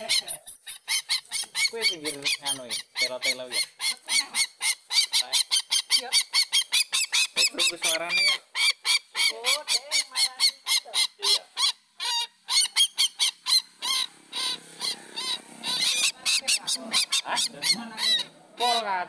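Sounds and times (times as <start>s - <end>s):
rapid rail bird calls: 0.0s - 19.0s.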